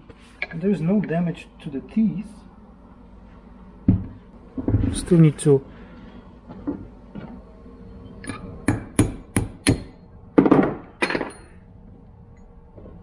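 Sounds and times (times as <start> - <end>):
hammer striking steel punch: 8.6 - 11.4.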